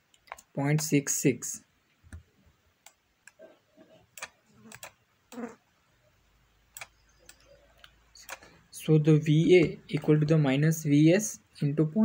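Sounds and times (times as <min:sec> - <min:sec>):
computer mouse clicks: 0:02.1 - 0:05.4, 0:06.7 - 0:08.6.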